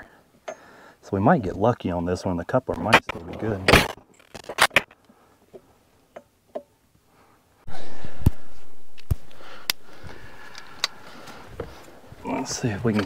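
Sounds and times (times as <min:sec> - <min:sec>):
gloved hand clicks: 0:08.3 - 0:11.0
sharp clicks: 0:08.9 - 0:11.0.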